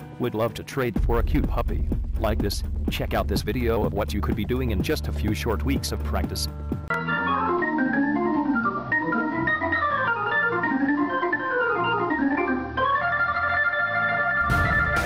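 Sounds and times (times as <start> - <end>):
organ playing fast runs: 3.1 - 15.0.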